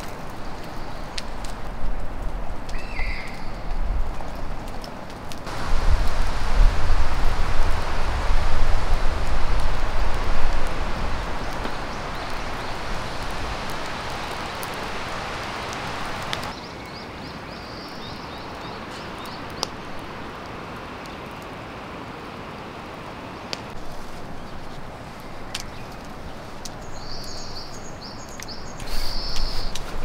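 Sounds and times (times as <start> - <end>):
wood fire crackling and popping: 0.0 - 16.6, 19.2 - 21.4, 23.5 - 27.0, 28.2 - 30.0
wind rushing through pine trees: 0.0 - 30.0
wind rumble on microphone: 0.1 - 4.8, 5.4 - 16.5
birds chirping: 5.5 - 19.7, 24.3 - 29.8.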